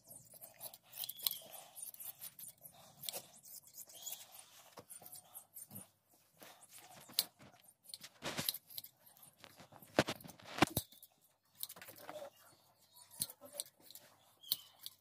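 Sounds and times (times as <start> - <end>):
metal scissors snipping fleece: 0.4 - 4.3, 9.9 - 11.9, 13.1 - 15.0.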